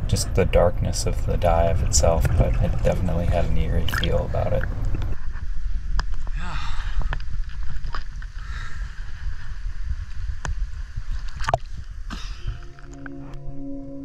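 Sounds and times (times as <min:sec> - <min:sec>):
water rumble against microphone: 0:00.0 - 0:13.0
water sloshing and splashing: 0:01.8 - 0:05.2
ambient music with held tones: 0:12.1 - 0:14.0.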